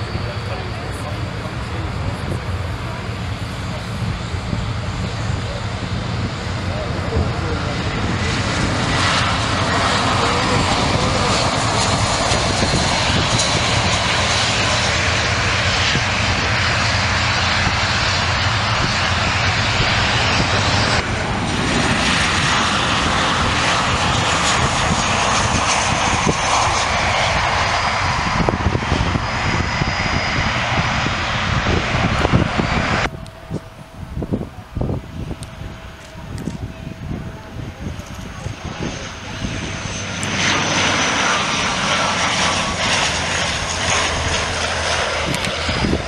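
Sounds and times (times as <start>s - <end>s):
jet engines roaring: 0.0s - 46.0s.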